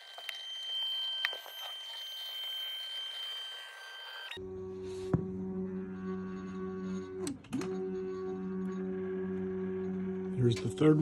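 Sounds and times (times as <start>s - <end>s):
stepper motors whining: 0.0s - 4.5s.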